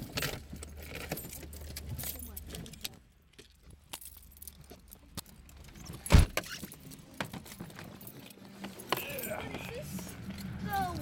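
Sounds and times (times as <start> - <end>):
car keys jangling: 0.0 - 11.0
handling clicks and rustles: 0.0 - 11.0.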